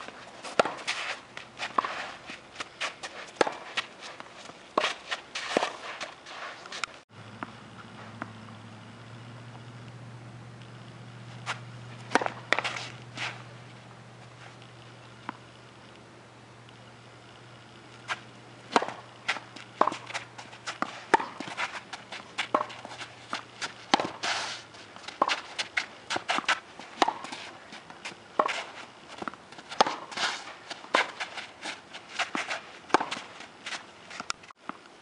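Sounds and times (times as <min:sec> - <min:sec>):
racket hitting tennis ball: 0:00.0 - 0:08.6, 0:11.3 - 0:13.5, 0:18.0 - 0:34.4
faint low hum: 0:00.0 - 0:35.0.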